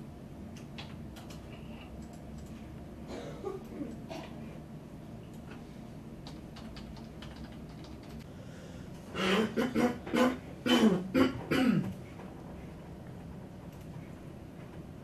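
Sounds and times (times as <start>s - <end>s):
keyboard typing clicks: 0.5s - 2.6s, 6.2s - 8.2s
person coughing: 3.1s - 4.5s, 9.1s - 11.9s.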